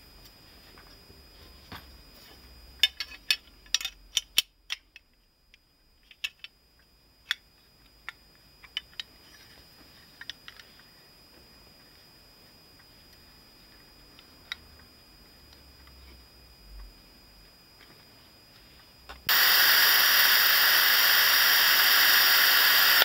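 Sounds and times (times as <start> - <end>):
small metal parts clicking: 2.8 - 5.2.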